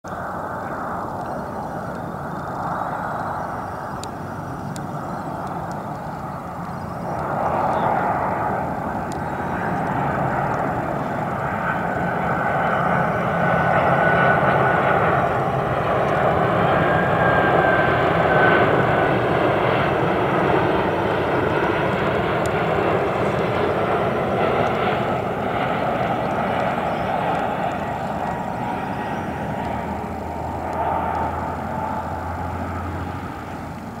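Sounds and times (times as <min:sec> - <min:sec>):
jet airliner roar with whine: 0:00.0 - 0:34.0.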